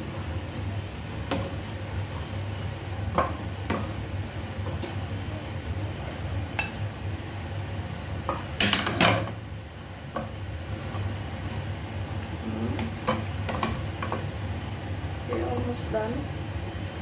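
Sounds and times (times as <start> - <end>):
steady low hum: 0.0 - 17.0
dishes and cookware clattering: 8.3 - 9.4.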